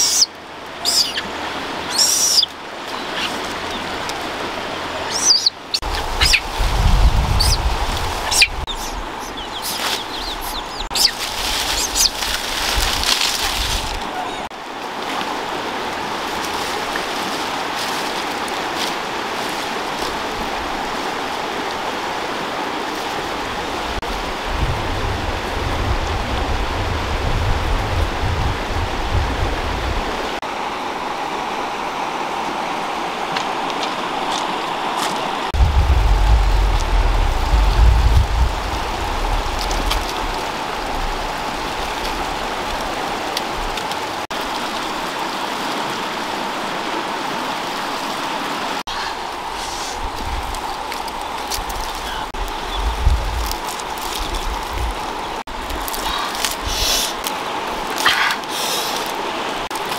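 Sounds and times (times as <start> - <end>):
river flowing: 0.0 - 59.9
low rumbling: 3.5 - 12.0, 35.5 - 42.4.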